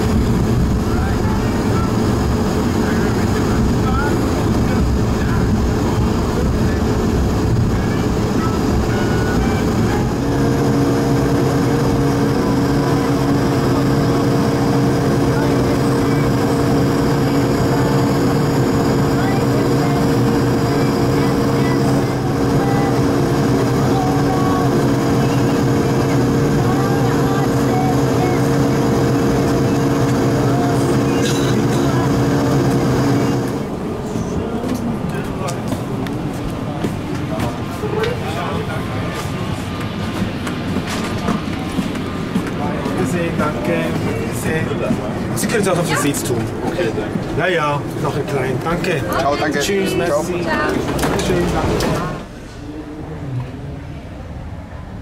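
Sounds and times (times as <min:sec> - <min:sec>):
steady hum: 0:00.0 - 0:41.0
aircraft cabin rumble: 0:00.0 - 0:48.9.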